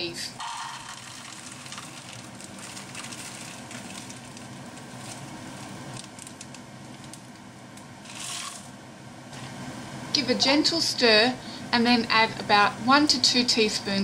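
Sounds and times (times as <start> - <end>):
pot boiling: 0.3 - 11.7
peas hissing in boiling water: 0.4 - 9.6
frozen peas rattling into plastic cup: 0.5 - 5.3, 8.0 - 8.7.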